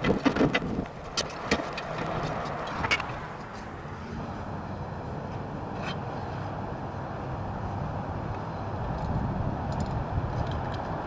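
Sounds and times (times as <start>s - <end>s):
clicks and knocks of roof tiles: 0.0s - 3.3s.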